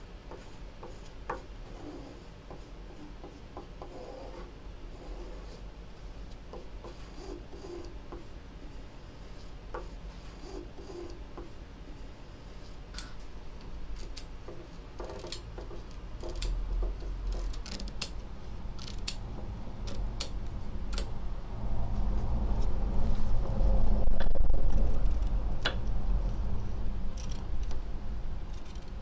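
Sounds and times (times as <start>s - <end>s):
low rumble: 20.5s - 27.1s.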